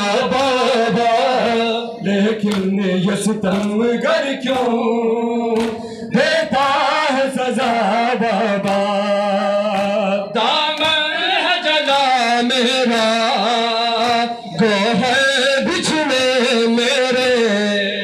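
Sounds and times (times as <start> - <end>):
person singing a lament: 0.0 - 18.0
hands slapping chest: 3.5 - 3.8, 4.5 - 4.8, 5.6 - 5.9, 8.6 - 8.9, 9.7 - 10.0.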